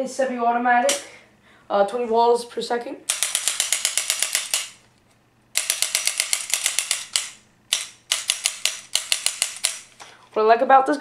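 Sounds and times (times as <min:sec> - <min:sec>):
paintball gun rapid clicking: 0:03.1 - 0:04.8, 0:05.6 - 0:09.9.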